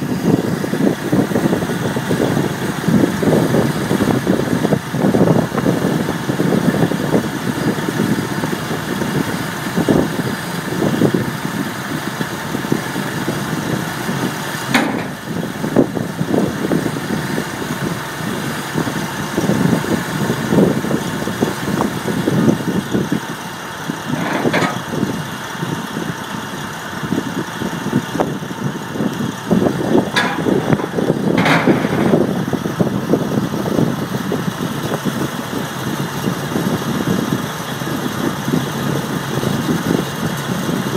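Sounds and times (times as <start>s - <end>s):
engine idling: 0.0s - 40.9s
sharp metal clanks: 30.1s - 32.2s.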